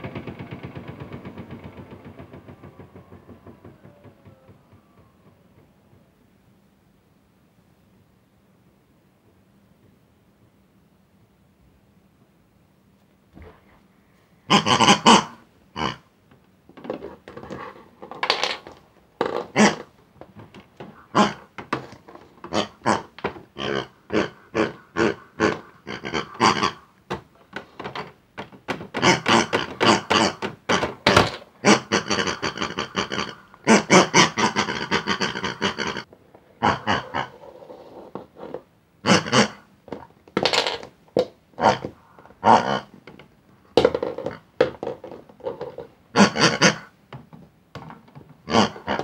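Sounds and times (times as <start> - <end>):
toy pig oinking and squealing: 14.5 - 16.0, 18.2 - 19.9, 21.0 - 26.9, 28.9 - 40.8, 41.6 - 43.0, 43.8 - 46.9, 48.4 - 49.0.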